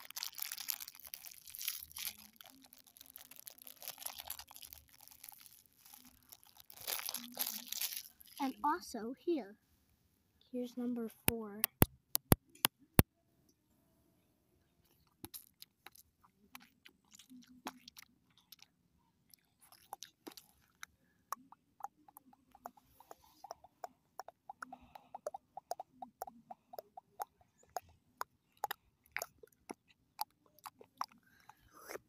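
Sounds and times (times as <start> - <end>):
sharp clicks and crunchy taps: 11.3 - 13.1.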